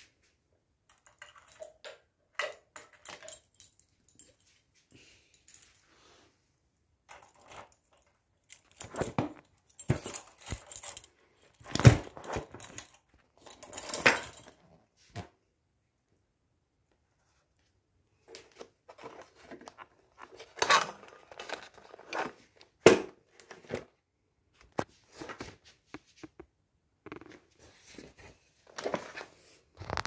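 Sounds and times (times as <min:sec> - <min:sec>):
keys jangling on key ring: 0:00.9 - 0:01.9, 0:02.7 - 0:05.8, 0:07.1 - 0:14.6
keys clicking in locks: 0:00.9 - 0:04.4, 0:07.1 - 0:14.6.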